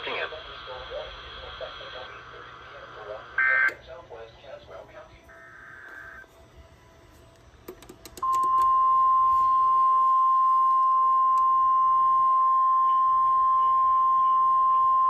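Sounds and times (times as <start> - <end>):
steady loud alarm tone: 5.3 - 6.3.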